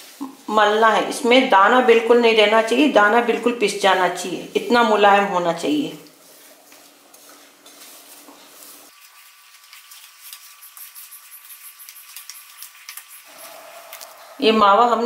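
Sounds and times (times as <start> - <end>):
dough rubbing and squishing on metal: 0.0 - 14.5
small ticks and scrapes: 6.0 - 14.2.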